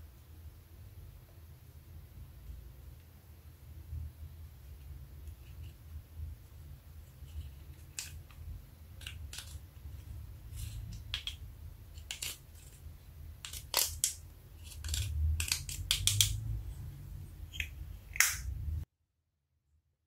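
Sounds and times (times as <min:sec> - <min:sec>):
plastic spatula scraping eyeshadow: 0:09.0 - 0:16.4.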